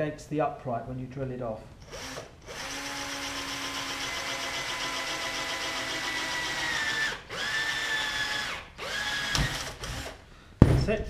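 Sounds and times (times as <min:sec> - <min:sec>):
cordless drill whining: 0:01.8 - 0:10.2.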